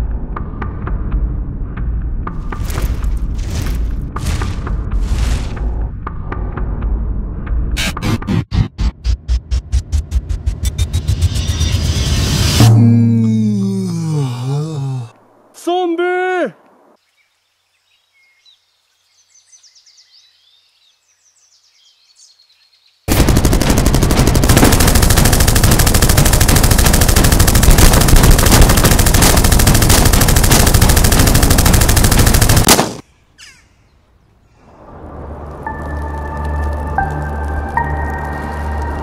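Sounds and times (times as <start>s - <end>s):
faint bird chirps: 17.0s - 23.0s
automatic gunfire: 23.1s - 33.0s.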